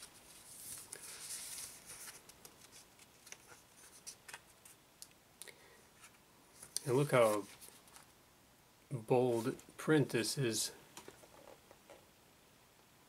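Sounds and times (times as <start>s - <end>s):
paper pages rustling: 0.0s - 4.8s, 6.0s - 8.1s.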